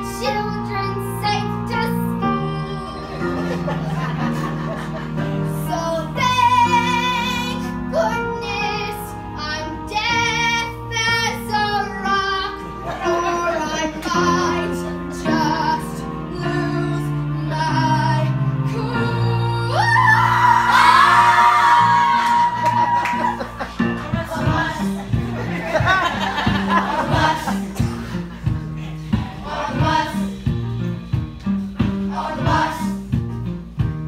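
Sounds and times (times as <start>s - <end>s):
instrumental accompaniment: 0.0s - 34.0s.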